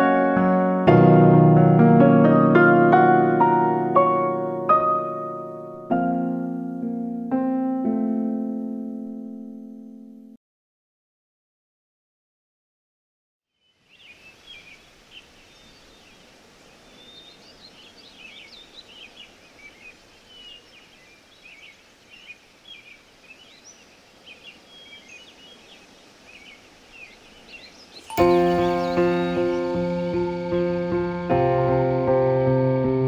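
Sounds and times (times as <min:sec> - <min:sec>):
small birds chirping: 0:13.5 - 0:31.9
faint outdoor hiss: 0:13.5 - 0:33.0
loud music with held notes: 0:28.1 - 0:33.0.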